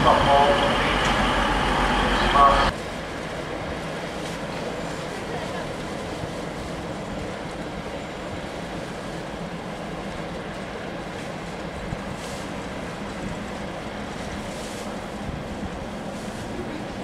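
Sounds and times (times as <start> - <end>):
station noise: 0.0 - 3.7
diesel locomotive engine rumbling: 0.0 - 17.0.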